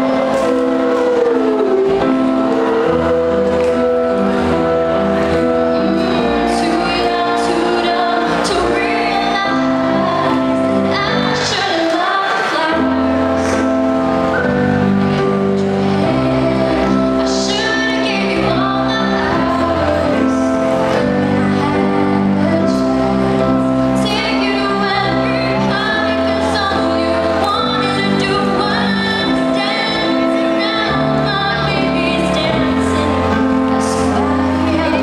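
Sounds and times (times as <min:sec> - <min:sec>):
girl singing into microphone: 0:00.0 - 0:35.0
instrumental accompaniment: 0:00.0 - 0:35.0.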